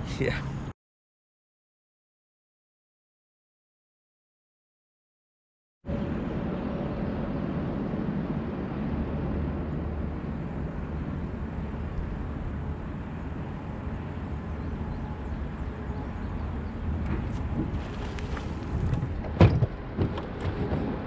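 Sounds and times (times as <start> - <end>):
low outdoor rumble: 5.9 - 21.0.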